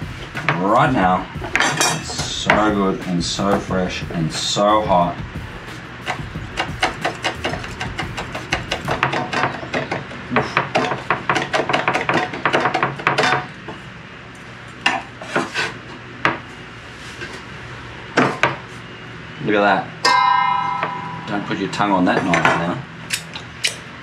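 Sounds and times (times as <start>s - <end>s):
knife chopping on cutting board: 6.1s - 9.8s.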